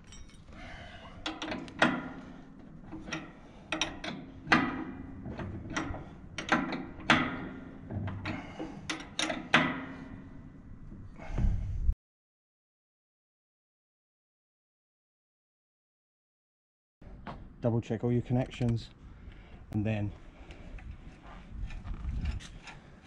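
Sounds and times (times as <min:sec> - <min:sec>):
spanner clinking on metal fittings: 0:00.0 - 0:00.5, 0:01.2 - 0:02.0, 0:02.9 - 0:07.4, 0:08.9 - 0:09.7.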